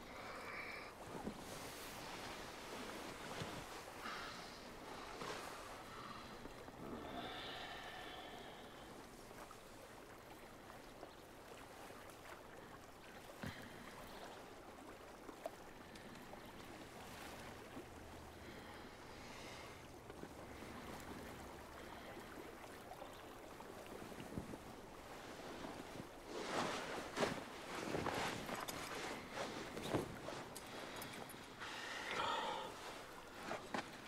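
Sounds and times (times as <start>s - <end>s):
soft clicks and rustles: 1.0s - 6.6s, 24.0s - 32.2s.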